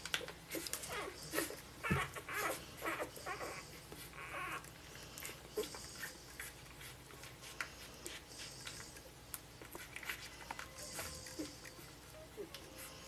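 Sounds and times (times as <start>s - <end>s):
puppies snuffling: 0.0s - 13.0s
puppies squeaking and whimpering: 0.2s - 7.1s, 9.6s - 13.0s.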